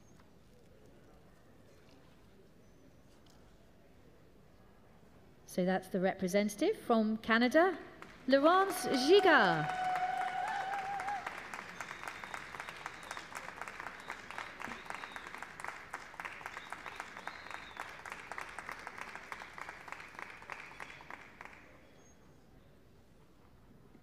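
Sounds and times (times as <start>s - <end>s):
audience applauding: 8.0s - 21.8s.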